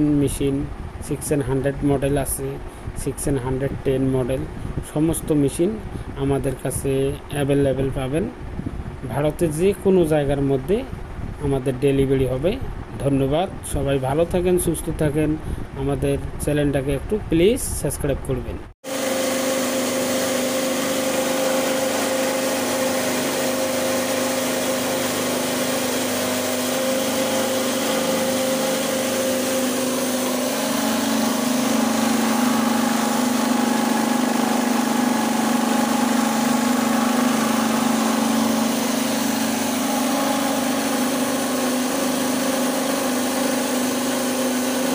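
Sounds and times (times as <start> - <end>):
mill motor humming: 18.8 - 44.9.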